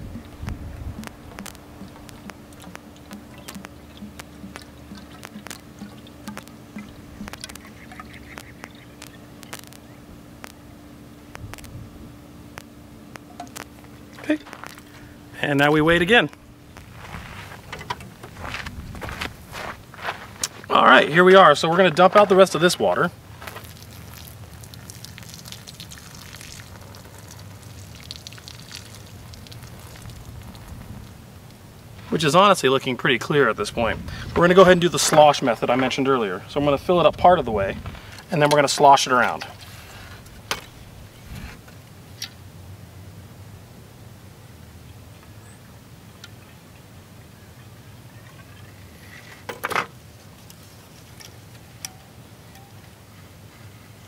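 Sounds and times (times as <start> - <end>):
water splashing onto ground: 1.0 - 9.8, 23.4 - 31.3.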